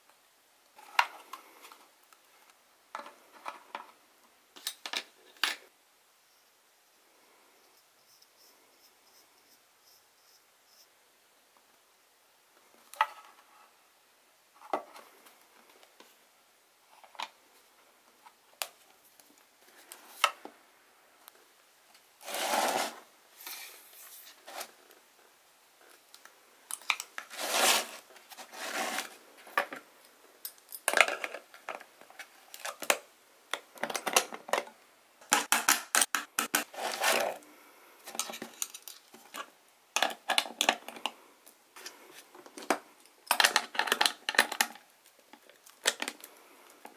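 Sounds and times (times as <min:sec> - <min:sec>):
metal scraping on plastic: 0:22.2 - 0:23.0.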